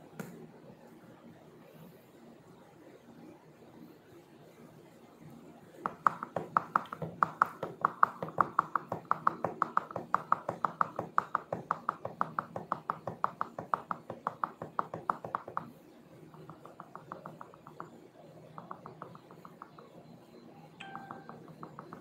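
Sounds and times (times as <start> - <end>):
keyboard keys typing: 16.4 - 20.0, 20.8 - 22.0.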